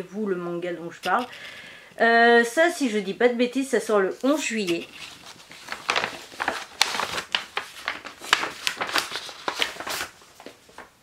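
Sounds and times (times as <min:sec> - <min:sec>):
paper and packaging rustling: 0:04.2 - 0:10.9.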